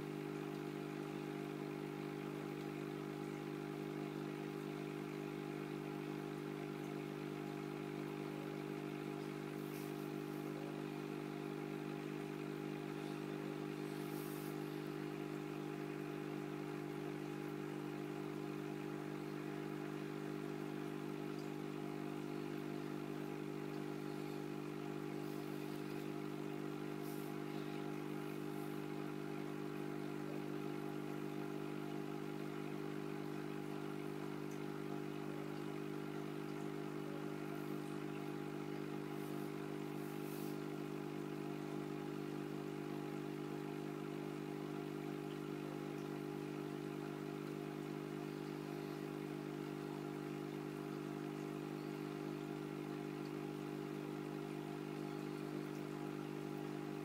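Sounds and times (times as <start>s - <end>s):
aquarium pump humming: 0.0s - 57.0s.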